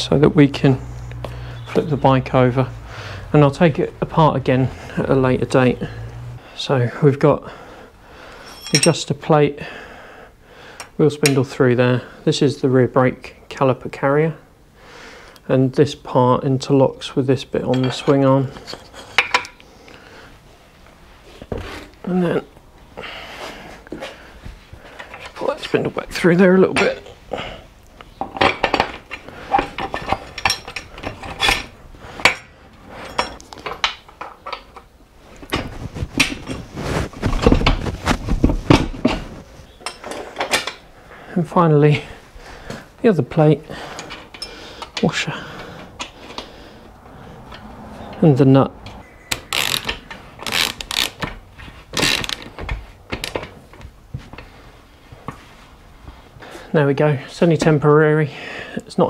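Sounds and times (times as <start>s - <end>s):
metal parts clinking: 8.4s - 9.0s, 28.3s - 34.9s, 49.3s - 51.4s
light clicks and knocks of tools: 27.9s - 34.9s, 43.9s - 46.5s.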